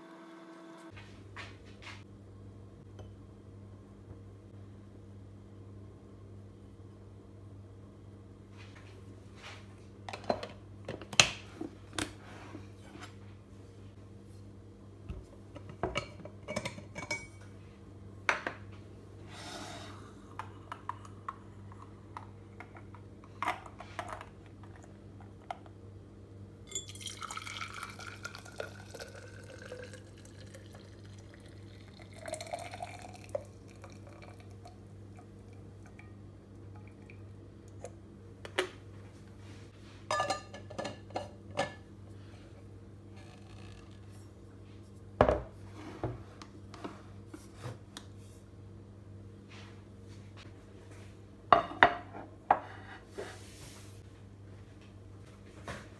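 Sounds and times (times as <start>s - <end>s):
liquid pouring into tumbler: 26.7s - 36.0s.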